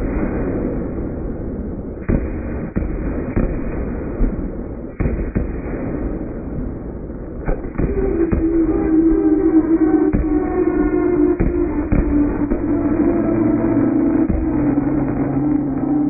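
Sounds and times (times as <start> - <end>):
low rumble of booms: 0.0 - 16.0
steady pitched tone: 7.6 - 16.0.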